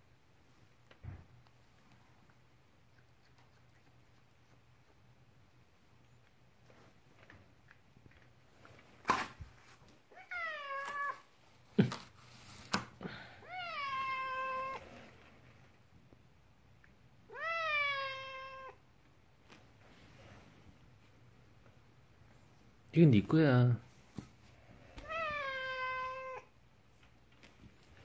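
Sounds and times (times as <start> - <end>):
cat meowing: 10.1 - 11.3, 13.4 - 14.9, 17.3 - 18.8, 25.0 - 26.5.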